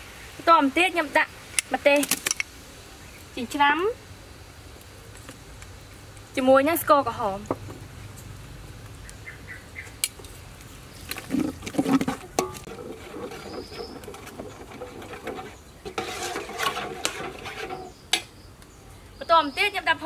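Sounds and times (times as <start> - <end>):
spoon scraping pot bottom: 11.1 - 18.0.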